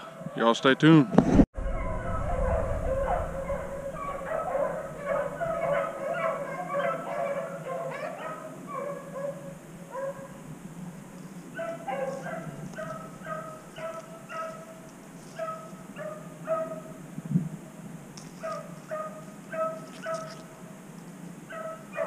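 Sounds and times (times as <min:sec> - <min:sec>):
dogs baying: 0:01.7 - 0:10.4, 0:11.5 - 0:17.0, 0:18.4 - 0:20.5, 0:21.5 - 0:22.0.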